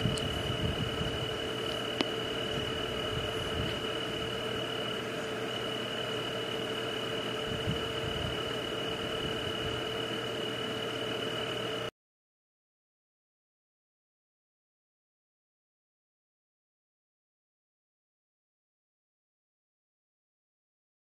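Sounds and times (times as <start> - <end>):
frogs and insects calling: 0.0 - 11.9.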